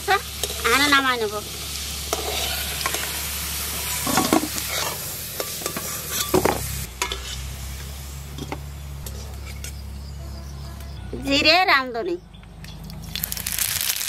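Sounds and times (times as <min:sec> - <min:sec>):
frying oil sizzling: 0:00.0 - 0:10.1, 0:13.0 - 0:14.0
metal spatula scraping a pan: 0:02.1 - 0:03.2, 0:03.8 - 0:07.6.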